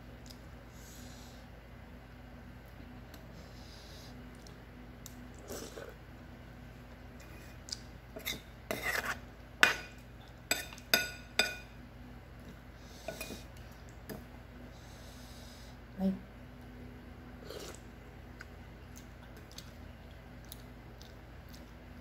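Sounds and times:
utensils scraping ceramic bowl: 0:08.2 - 0:09.8.

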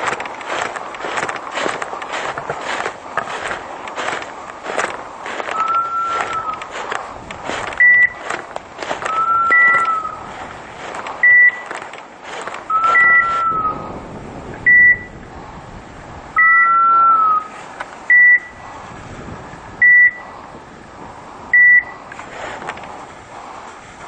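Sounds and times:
rustling: 0:00.0 - 0:13.8, 0:22.1 - 0:24.0
short high beeps: 0:07.8 - 0:08.2, 0:09.1 - 0:10.2, 0:11.2 - 0:11.7, 0:12.7 - 0:13.8, 0:14.7 - 0:15.1, 0:16.4 - 0:17.4, 0:18.1 - 0:18.6, 0:19.8 - 0:20.2, 0:21.6 - 0:22.0.

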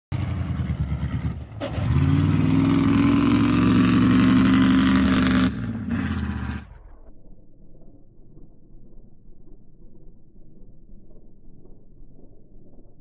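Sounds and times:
diesel truck engine revving: 0:00.1 - 0:06.8.

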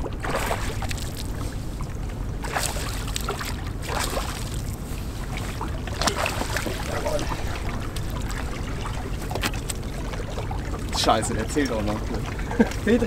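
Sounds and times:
steady low rumble: 0:00.0 - 0:13.0
water splashing beside a boat: 0:00.0 - 0:13.0.

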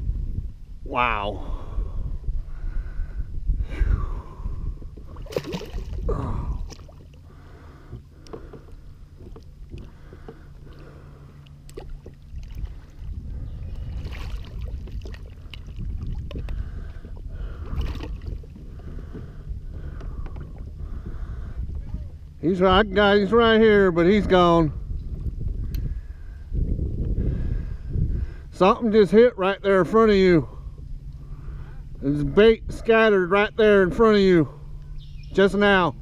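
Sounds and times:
water sloshing against a kayak: 0:03.9 - 0:29.0
short splashes: 0:05.1 - 0:07.2, 0:13.7 - 0:16.2, 0:17.6 - 0:18.4.

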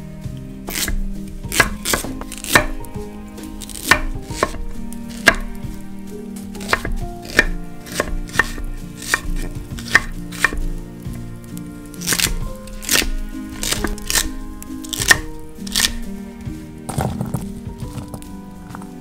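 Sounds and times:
knife chopping on wooden board: 0:00.7 - 0:02.8, 0:03.6 - 0:05.6, 0:06.6 - 0:10.7, 0:12.0 - 0:16.0.

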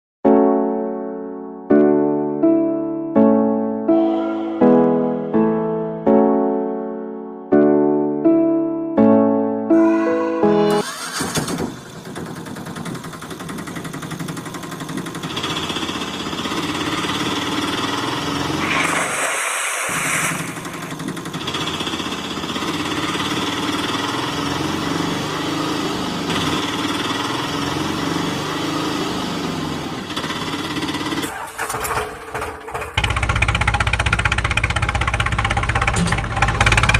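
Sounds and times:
auto rickshaw engine puttering: 0:10.8 - 0:19.0, 0:20.2 - 0:36.9
brief hissing burst: 0:18.6 - 0:21.0.

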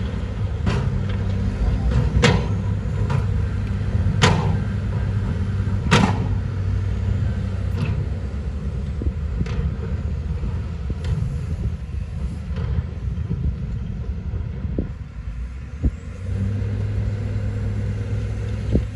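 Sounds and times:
diesel engine rumbling: 0:00.0 - 0:18.9
loud sharp knocks: 0:04.2 - 0:04.7, 0:05.8 - 0:06.4.

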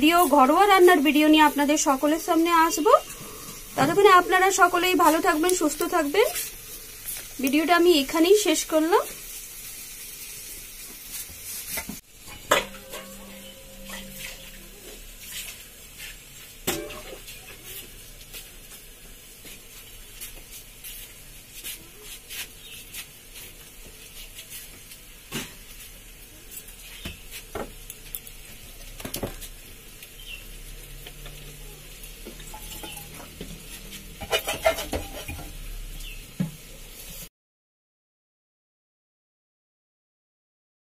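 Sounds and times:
utensil scraping a steel pan: 0:11.6 - 0:18.0, 0:32.5 - 0:35.6.

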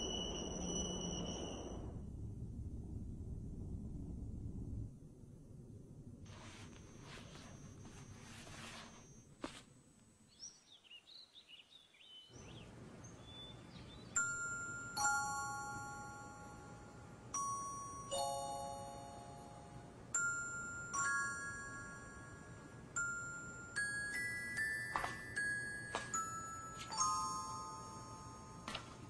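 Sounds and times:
faint high chirps: 0:00.0 - 0:02.0
soft hiss: 0:03.7 - 0:11.2
bell-like chimes ringing: 0:14.2 - 0:29.0.

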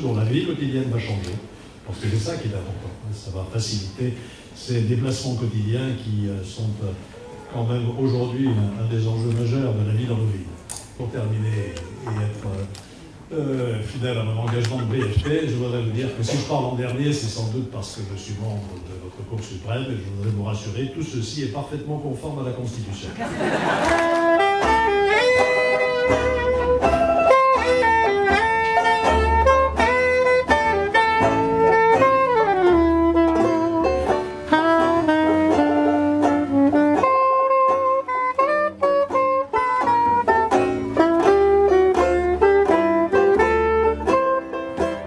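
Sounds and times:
plucked double bass: 0:13.7 - 0:18.3, 0:23.4 - 0:45.0
banjo: 0:14.4 - 0:16.8, 0:23.5 - 0:45.0
soprano saxophone melody: 0:23.9 - 0:45.0.

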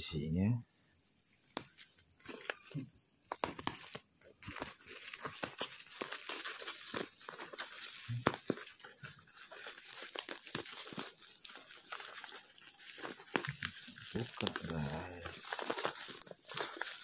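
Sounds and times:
plastic bag and tape crinkling tearing: 0:00.8 - 0:17.0.

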